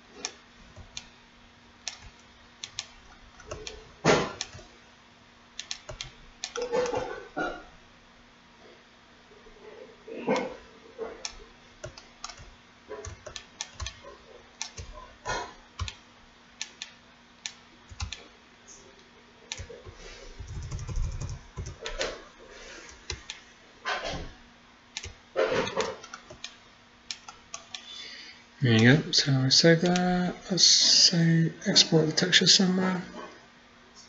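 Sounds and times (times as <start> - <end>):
faint steady hum: 0.0 - 34.0
mouse and keyboard clicking: 1.8 - 3.8, 4.4 - 4.7, 5.6 - 7.1, 11.2 - 14.0, 14.6 - 15.0, 15.8 - 16.0, 16.6 - 18.2, 19.5 - 22.1, 25.0 - 27.9.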